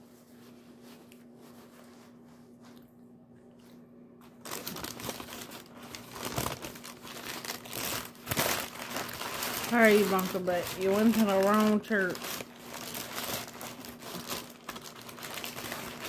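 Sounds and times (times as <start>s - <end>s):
food wrapping crinkling: 4.2s - 16.0s.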